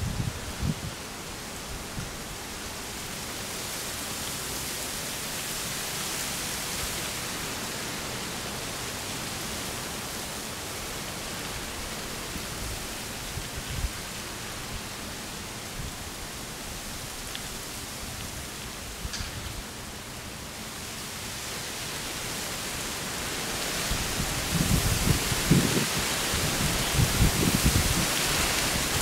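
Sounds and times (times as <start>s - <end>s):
steady hiss: 0.0s - 29.0s.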